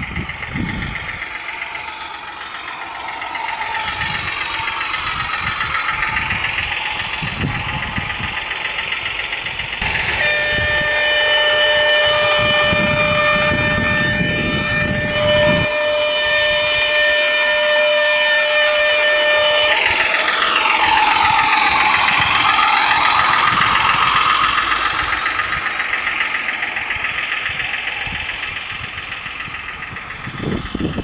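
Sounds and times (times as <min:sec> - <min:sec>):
diesel engine from small speaker: 0:00.0 - 0:31.0
horn of steady notes: 0:09.8 - 0:30.3.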